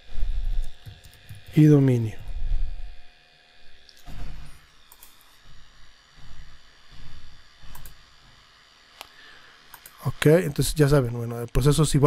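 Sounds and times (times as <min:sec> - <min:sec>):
computer mouse clicks: 0:04.9 - 0:05.2, 0:07.7 - 0:08.0, 0:09.7 - 0:10.0.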